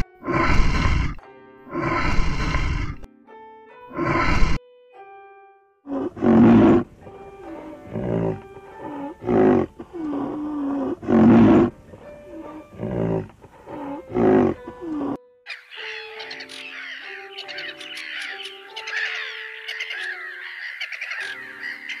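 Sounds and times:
background music: 0:00.0 - 0:22.0
rhinoceros low calls: 0:05.9 - 0:07.0, 0:07.6 - 0:15.2
bird calls: 0:13.7 - 0:22.0.

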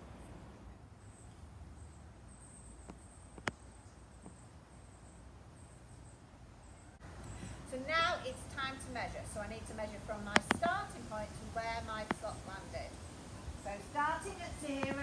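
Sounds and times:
sharp clicks: 0:10.3 - 0:10.8.

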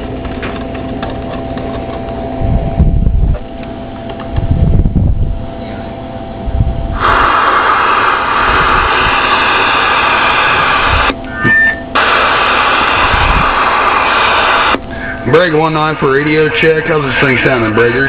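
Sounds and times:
radio static hissing: 0:07.0 - 0:18.0.

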